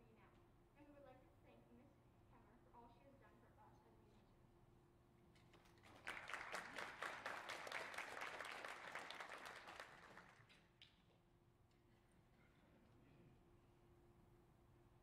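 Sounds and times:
audience applauding: 0:05.8 - 0:10.6.

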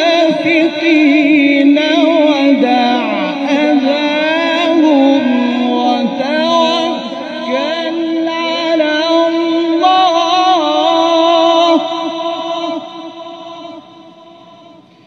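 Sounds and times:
man reciting melodically: 0:00.0 - 0:15.0.

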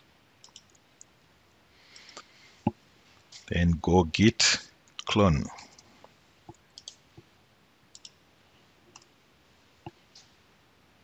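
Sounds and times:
keyboard and mouse clicks: 0:00.4 - 0:01.1, 0:06.5 - 0:07.0, 0:07.9 - 0:08.2, 0:08.9 - 0:09.1.

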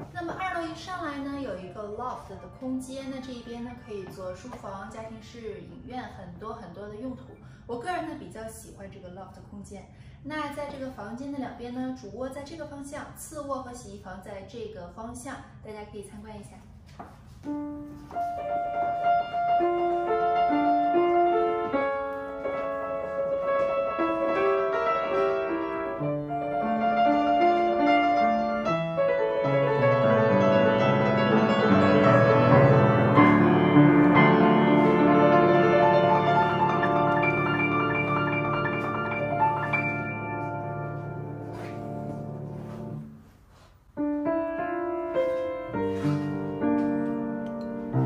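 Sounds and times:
piano music: 0:01.6 - 0:04.6, 0:17.5 - 0:43.4, 0:44.0 - 0:48.0.

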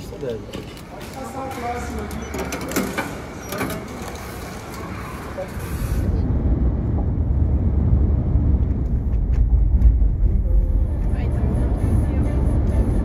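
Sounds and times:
car driving rumble from inside: 0:06.1 - 0:13.0.

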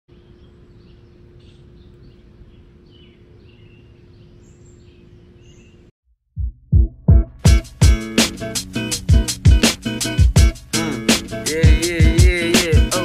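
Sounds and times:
small birds chirping: 0:00.1 - 0:05.9
heavy music beat: 0:06.4 - 0:13.0.

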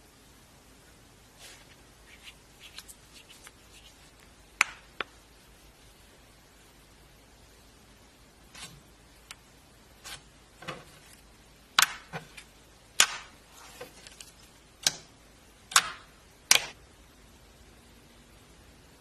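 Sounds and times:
slime squished with clicks and pops: 0:11.8 - 0:12.2, 0:13.0 - 0:13.3, 0:15.7 - 0:16.8.

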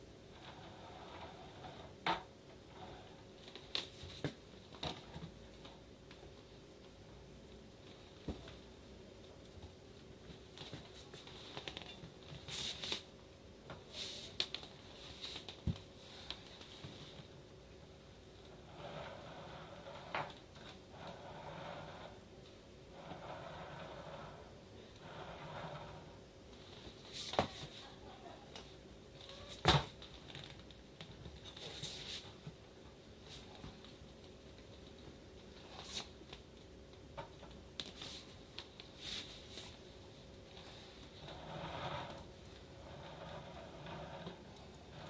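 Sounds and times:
rustling and sliding: 0:10.2 - 0:13.1, 0:13.7 - 0:17.4, 0:22.9 - 0:28.1, 0:31.2 - 0:32.6, 0:35.6 - 0:36.4, 0:37.8 - 0:45.0
light scraping and shuffling: 0:13.8 - 0:17.3, 0:25.0 - 0:28.5, 0:31.3 - 0:32.6, 0:37.8 - 0:45.0.

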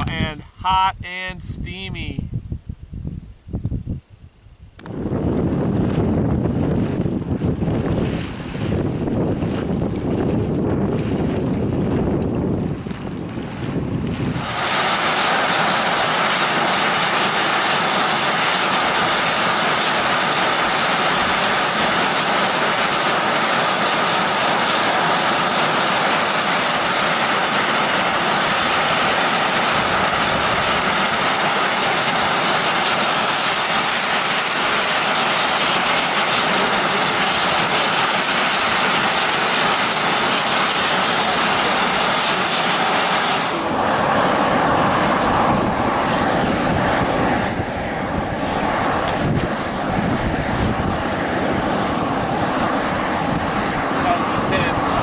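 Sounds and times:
steam hissing from a vent: 0:14.3 - 0:43.8.

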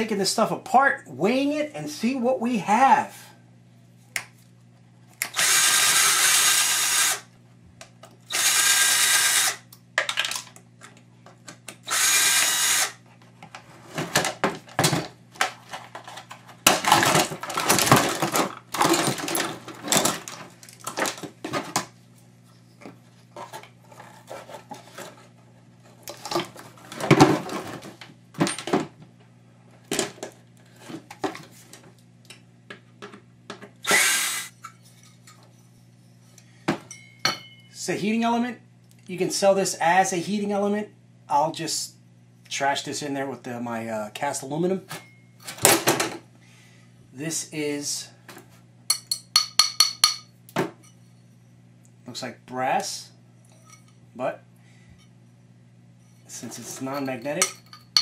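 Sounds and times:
power drill whirring: 0:05.2 - 0:07.3, 0:08.3 - 0:09.7, 0:11.8 - 0:13.0, 0:33.8 - 0:34.5
plastic parts clattering: 0:10.0 - 0:10.6, 0:13.9 - 0:21.9.

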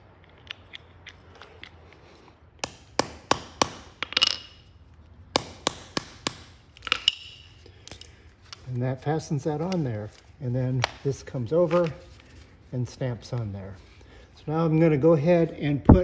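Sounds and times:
hammer striking metal punch: 0:05.3 - 0:07.4.

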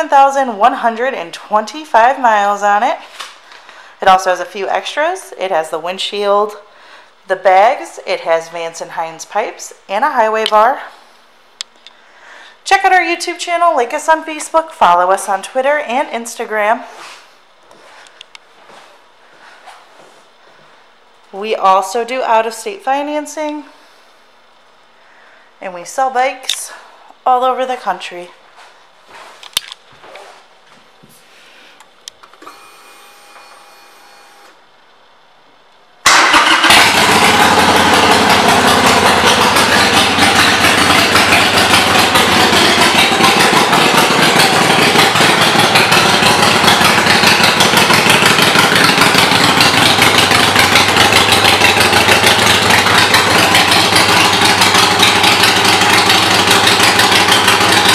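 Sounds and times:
motorcycle engine idling: 0:36.2 - 0:57.9.

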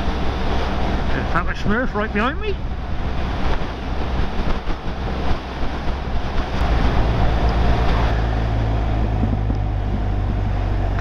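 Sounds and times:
wind rush: 0:00.0 - 0:11.0
motorcycle engine drone: 0:05.6 - 0:11.0.

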